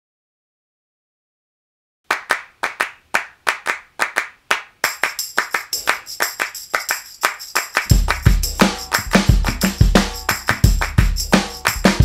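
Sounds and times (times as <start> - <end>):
hand claps rhythm: 2.1 - 12.0
jingling percussion: 4.8 - 12.0.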